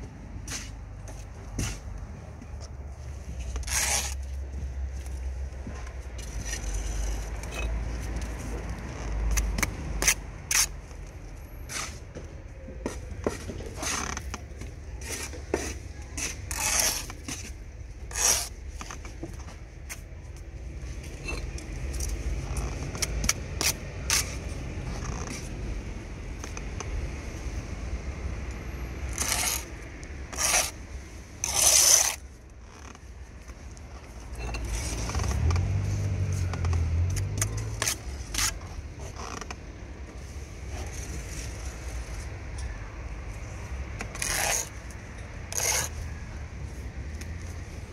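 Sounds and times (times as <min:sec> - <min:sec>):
trowel scraping mortar: 0:03.4 - 0:04.3, 0:06.2 - 0:08.5, 0:09.3 - 0:10.7, 0:15.0 - 0:19.0, 0:21.2 - 0:25.5, 0:29.1 - 0:30.8, 0:31.4 - 0:33.0, 0:34.4 - 0:35.6, 0:36.7 - 0:39.5, 0:44.0 - 0:44.9, 0:45.5 - 0:46.1.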